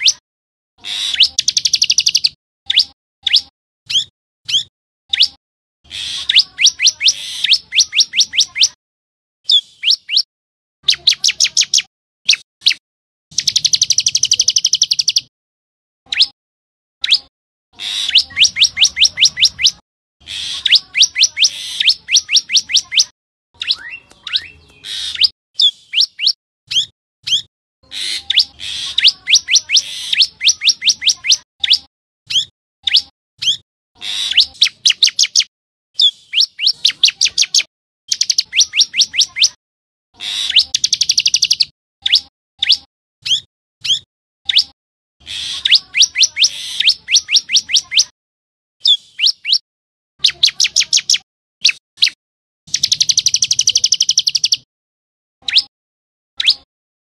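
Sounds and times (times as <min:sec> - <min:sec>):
bird calling sharp high notes: 0:17.0 - 0:27.4.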